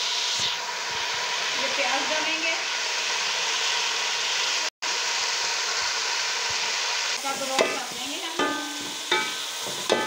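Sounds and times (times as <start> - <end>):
onions sizzling in hot oil: 0.0 - 10.0
wooden spoon knocking on pot: 7.5 - 10.0.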